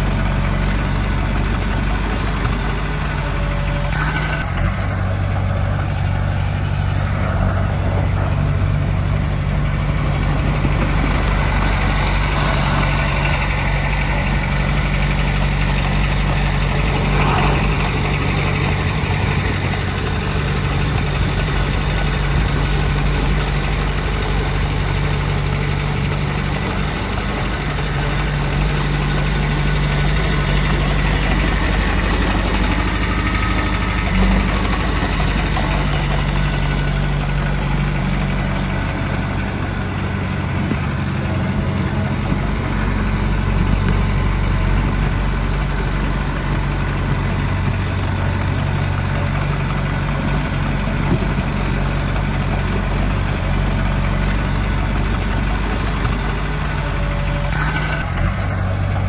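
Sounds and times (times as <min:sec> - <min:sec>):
bulldozer diesel engine running: 0:00.0 - 0:59.0.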